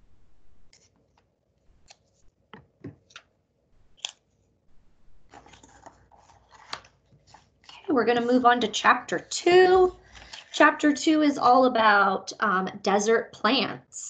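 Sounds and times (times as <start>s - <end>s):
paper pages rustling: 0.7s - 3.2s, 5.2s - 10.6s.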